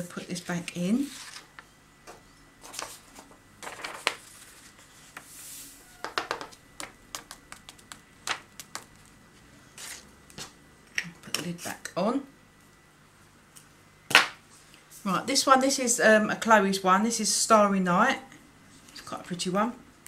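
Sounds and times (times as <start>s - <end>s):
paper rustling and crinkling: 0.4s - 1.7s, 2.6s - 6.0s.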